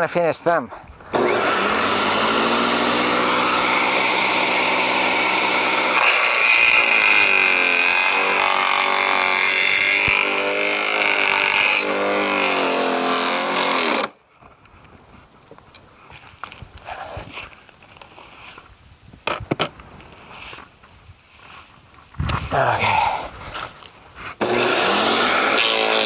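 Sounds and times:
garden shredder running: 0:01.1 - 0:14.1, 0:24.4 - 0:26.0.

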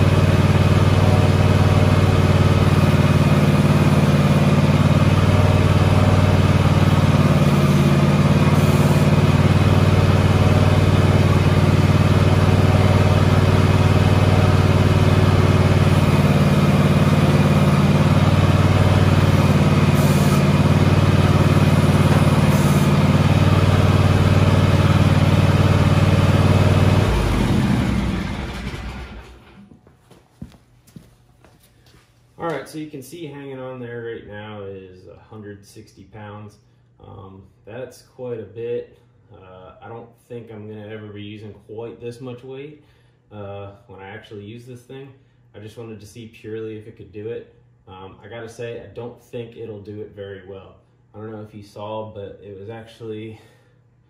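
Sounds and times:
lawn tractor engine running: 0:00.0 - 0:29.7.

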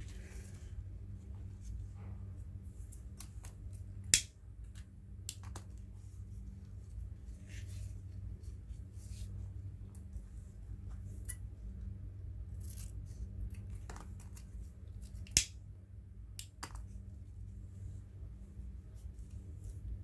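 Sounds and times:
ribbon snap: 0:04.1 - 0:04.4.

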